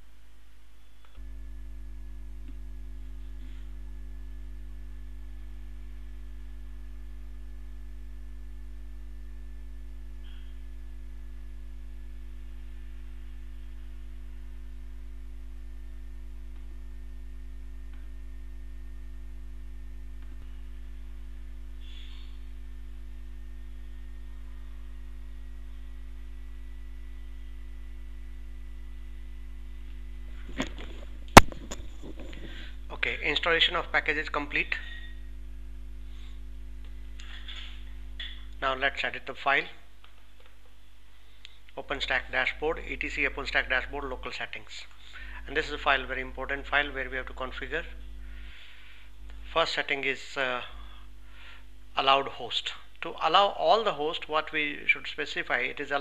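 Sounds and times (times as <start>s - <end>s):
faint high whine: 0.0s - 40.0s
electrical mains hum: 0.0s - 56.0s.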